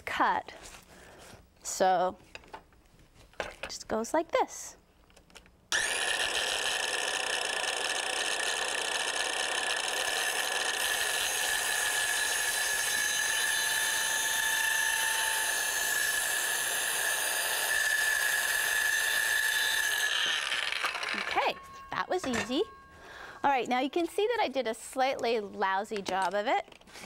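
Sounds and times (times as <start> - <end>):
circular saw cutting wood: 5.7 - 21.6.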